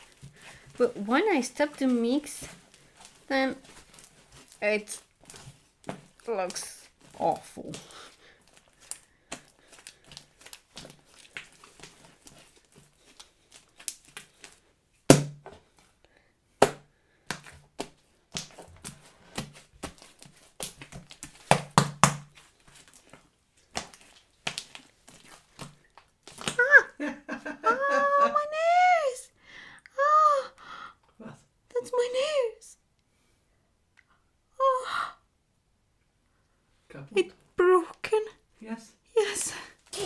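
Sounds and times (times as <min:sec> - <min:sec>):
slime squelching and popping: 0:00.0 - 0:15.5, 0:16.6 - 0:26.7.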